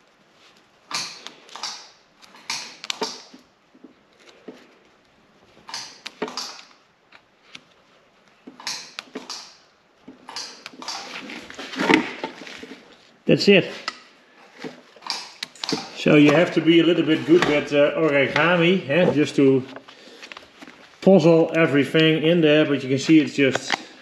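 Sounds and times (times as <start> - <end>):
spot welder snapping on foil: 0.9 - 3.4, 5.7 - 6.8, 8.6 - 9.6, 10.2 - 12.2.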